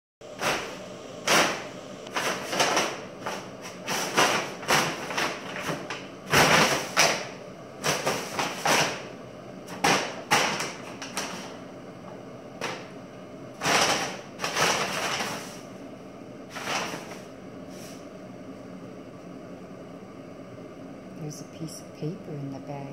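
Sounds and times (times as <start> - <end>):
paper bag rustling: 0.4 - 9.0, 9.7 - 11.6, 13.6 - 15.7, 16.5 - 18.0.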